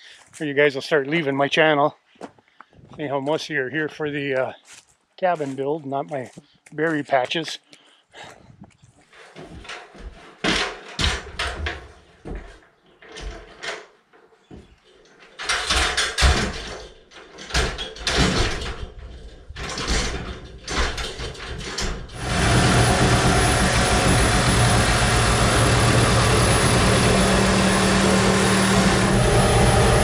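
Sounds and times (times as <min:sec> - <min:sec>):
boards and tools clattering: 0:09.0 - 0:29.0
steady running noise: 0:22.2 - 0:30.0.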